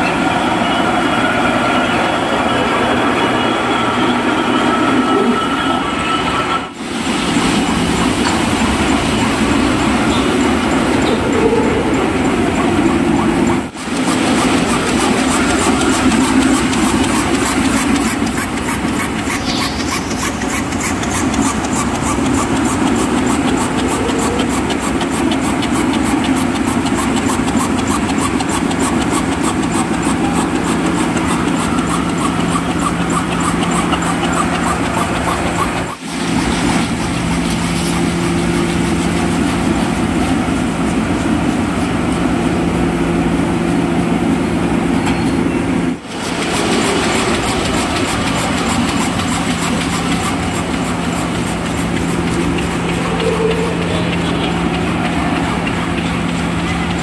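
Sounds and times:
factory machine hum: 0:00.0 - 0:57.0
cutting machine clattering: 0:01.8 - 0:40.5, 0:46.0 - 0:57.0.

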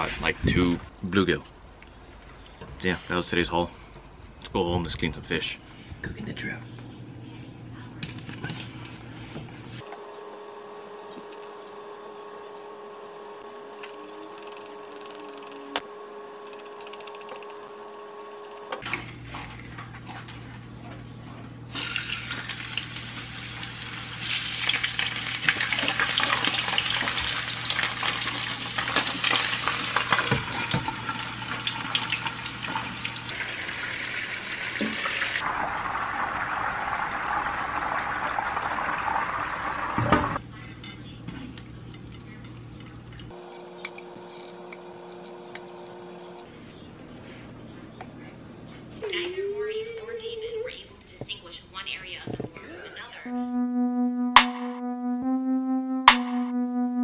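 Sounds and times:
low kitchen hum: 0:05.0 - 0:36.6, 0:40.4 - 0:49.6
fish sizzling in frying pan: 0:21.8 - 0:37.6.

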